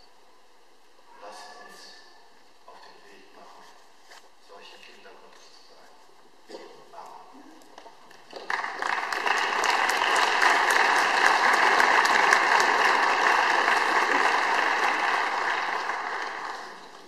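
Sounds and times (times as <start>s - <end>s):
audience applauding: 8.1s - 17.0s.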